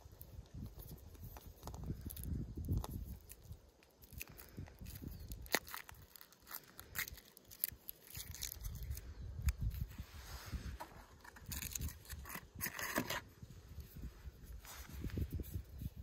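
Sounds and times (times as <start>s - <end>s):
foil wrapper crinkling and tearing: 0.0s - 10.0s, 11.2s - 13.2s.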